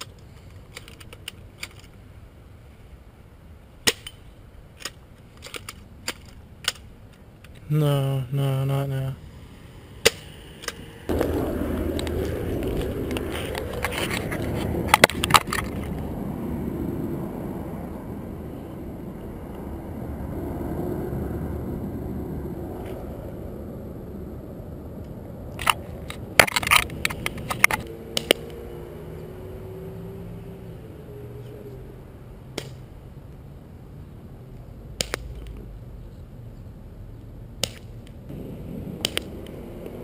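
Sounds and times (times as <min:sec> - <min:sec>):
camera handling rumble: 0:00.0 - 0:02.0, 0:10.6 - 0:16.1, 0:25.5 - 0:28.4
hockey pucks clicking on concrete: 0:11.9 - 0:16.0, 0:25.7 - 0:28.5, 0:35.0 - 0:35.6, 0:37.6 - 0:38.2, 0:39.0 - 0:40.0.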